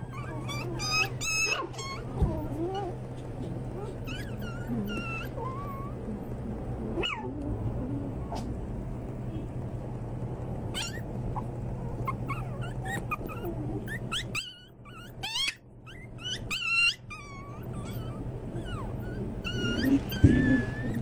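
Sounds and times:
puppies whining and yipping: 0.0 - 6.1, 10.7 - 21.0.

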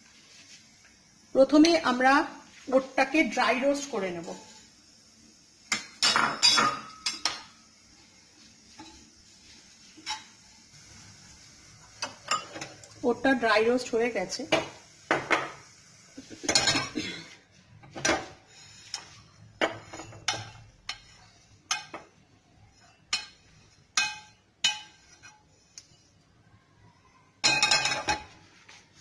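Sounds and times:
spoon clinking on frying pan: 19.7 - 22.1, 23.1 - 25.1.

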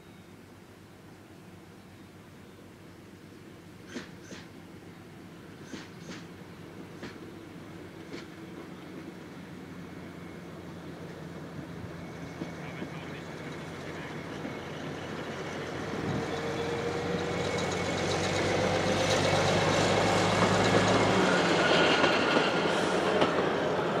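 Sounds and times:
diesel railcar engine drone: 0.0 - 24.0
steel wheels rolling on rails: 11.9 - 24.0.

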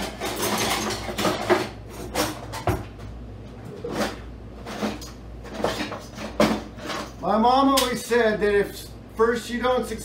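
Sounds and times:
kitchen things clattering: 0.0 - 2.9, 3.7 - 7.2.

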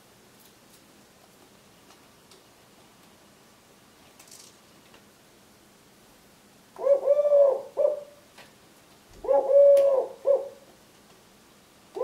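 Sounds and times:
dove cooing: 6.8 - 8.2, 9.2 - 10.7.

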